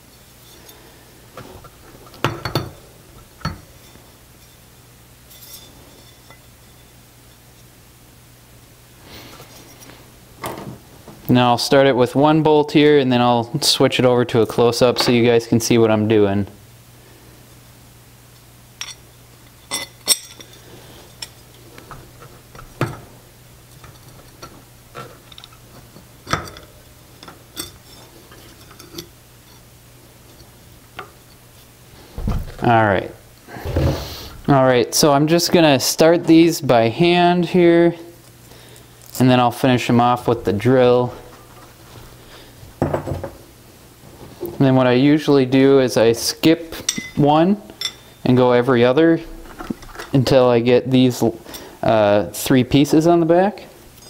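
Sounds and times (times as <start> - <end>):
metallic clinks of bicycle parts: 19.7 - 20.6.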